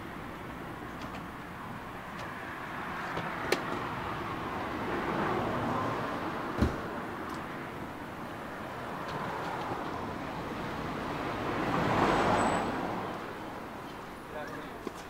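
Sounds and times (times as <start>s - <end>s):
street traffic: 0.0s - 15.0s
car door shutting: 6.5s - 6.9s.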